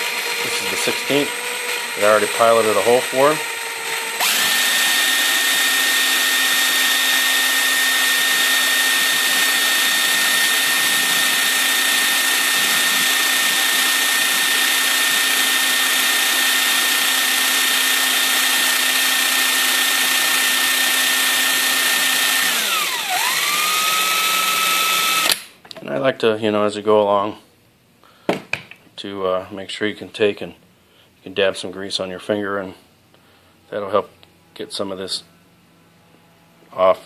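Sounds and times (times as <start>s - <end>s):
electric drill running: 0.0s - 25.5s.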